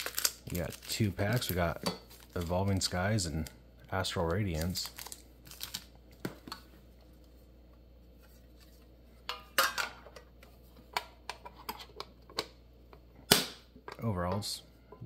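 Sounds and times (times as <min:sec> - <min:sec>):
plastic wrap crinkling: 0:00.0 - 0:06.4.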